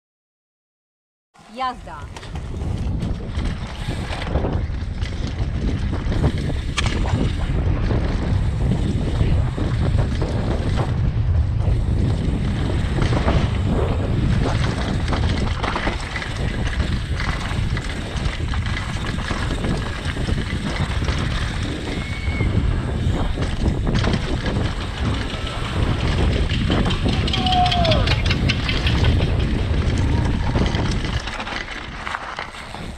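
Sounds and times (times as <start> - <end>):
wind buffeting microphone: 1.7 - 32.9
bike tyre rumble on dirt: 2.0 - 32.9
bike knocks and rattles: 2.1 - 32.9.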